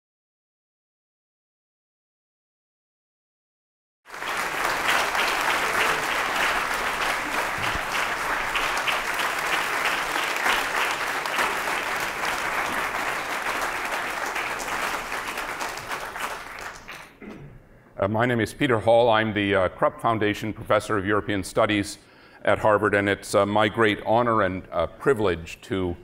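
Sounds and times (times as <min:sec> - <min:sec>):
audience applauding: 0:04.1 - 0:17.2.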